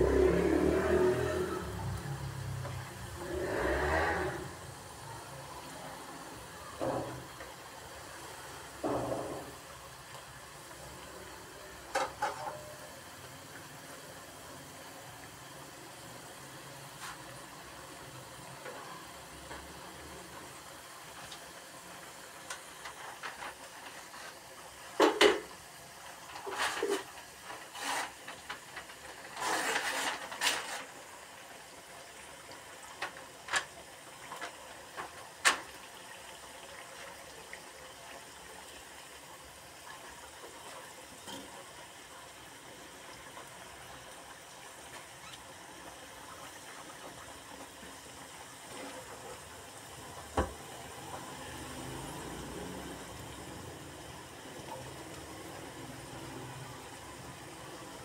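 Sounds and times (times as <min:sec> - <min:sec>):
fries sizzling in oil: 0:00.0 - 0:58.0
metal skimmer scraping pan: 0:26.3 - 0:31.0.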